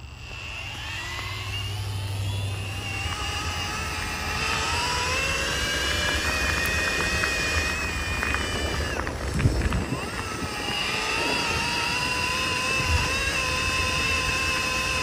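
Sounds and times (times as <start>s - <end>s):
drill motor whining: 0.0s - 15.0s.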